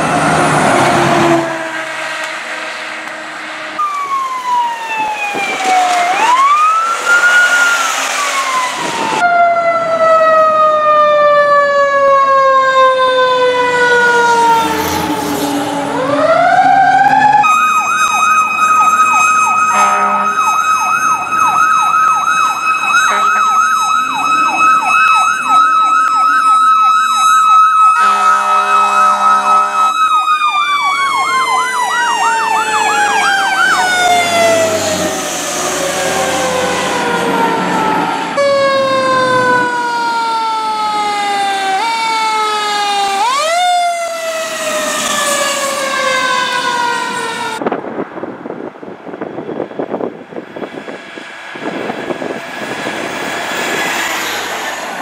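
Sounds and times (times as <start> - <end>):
fire truck siren wailing: 0.0 - 55.0
siren yelping in a fast warble: 3.8 - 14.7, 16.0 - 35.1
air horn bursts: 19.7 - 20.5, 23.0 - 23.6, 28.0 - 29.9.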